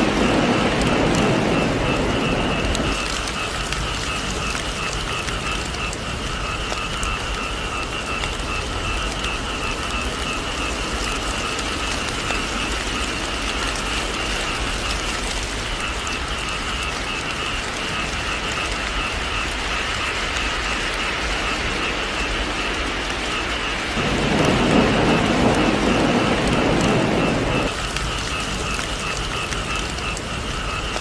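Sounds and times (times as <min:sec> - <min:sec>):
heavy rain: 0:00.0 - 0:31.0.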